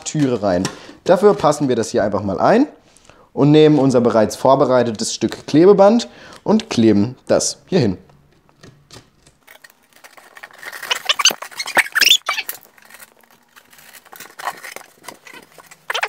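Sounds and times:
scratchy rubbing: 0:09.6 - 0:16.0
foam board squeaking: 0:10.0 - 0:16.0.

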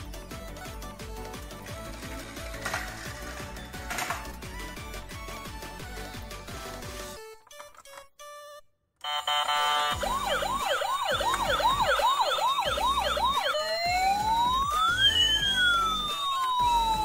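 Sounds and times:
toy siren: 0:09.0 - 0:17.0.

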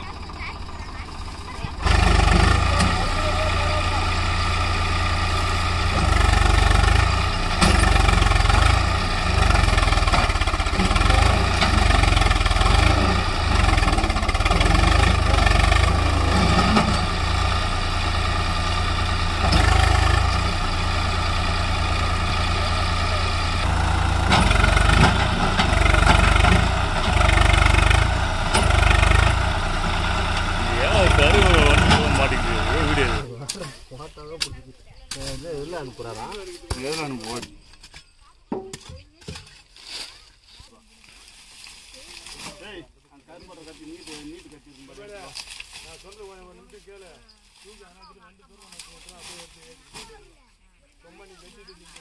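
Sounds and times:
tractor diesel engine revving: 0:00.0 - 0:33.4.

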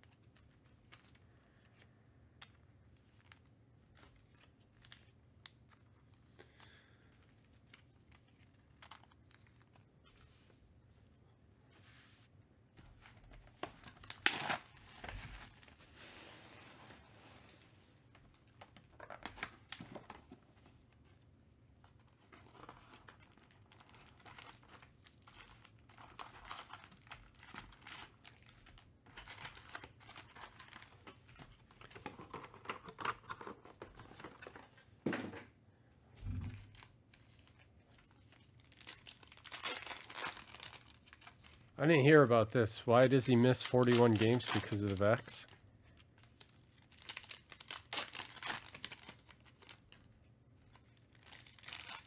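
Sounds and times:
plastic wrapper crinkling: 0:13.4 - 0:20.2, 0:21.9 - 0:34.5, 0:36.5 - 0:52.0
wrapper ripping: 0:13.6 - 0:16.5, 0:36.6 - 0:41.7, 0:43.0 - 0:45.6, 0:46.2 - 0:50.0, 0:50.7 - 0:52.0.

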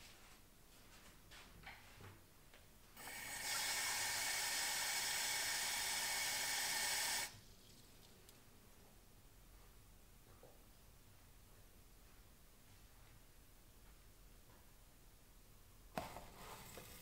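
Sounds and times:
tap water running: 0:03.0 - 0:07.4.

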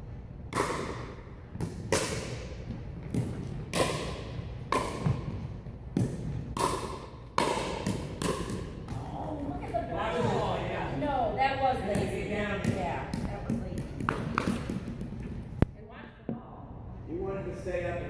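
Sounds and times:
paddles striking ball: 0:00.5 - 0:10.5, 0:11.9 - 0:15.7
ball bouncing on wooden floor: 0:01.5 - 0:10.5, 0:11.8 - 0:15.7.

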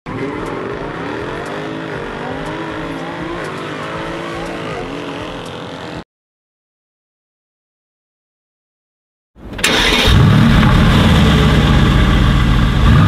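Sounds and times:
car engine accelerating through gears: 0:00.1 - 0:06.0, 0:09.6 - 0:13.0.

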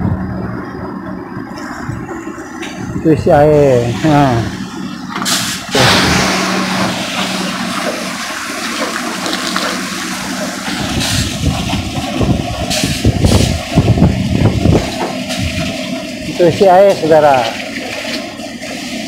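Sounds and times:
truck engine hum: 0:00.0 - 0:19.0
water gushing from a hose: 0:01.6 - 0:19.0
low thumps: 0:05.8 - 0:08.3.

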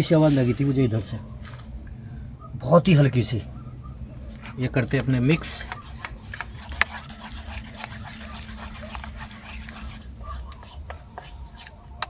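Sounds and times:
crickets chirping: 0:00.0 - 0:12.0
spoon scraping metal pot: 0:05.0 - 0:12.0.

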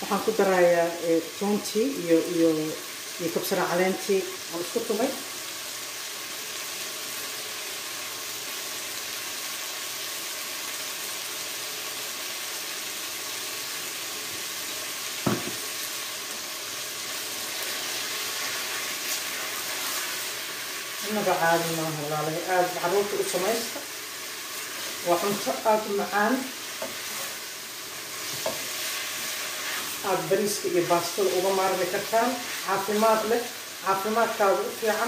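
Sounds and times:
sweet potato sizzling in a pan: 0:00.0 - 0:35.0
sharp knock: 0:15.2 - 0:15.6
wooden spatula stirring pan: 0:26.6 - 0:27.4, 0:28.0 - 0:30.0, 0:32.0 - 0:33.1.

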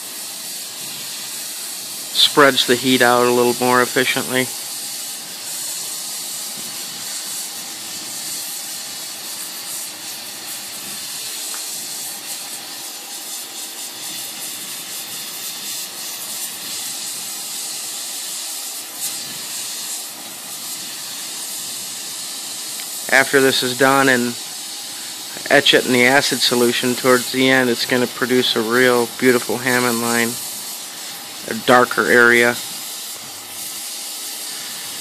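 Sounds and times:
gas torch hissing: 0:00.0 - 0:35.0.

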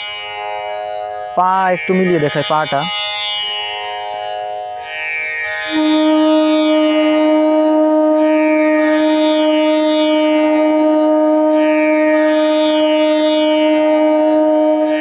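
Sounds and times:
plucked drone: 0:00.0 - 0:04.4, 0:05.7 - 0:15.0
bamboo flute long note: 0:05.6 - 0:15.0.

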